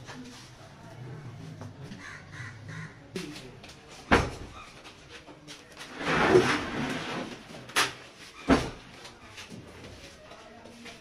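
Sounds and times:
board scraping on table: 0:05.8 - 0:07.6.

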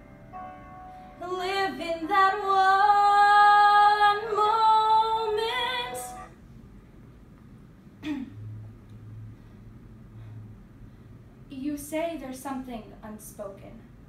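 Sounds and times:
woman singing: 0:01.2 - 0:06.3.

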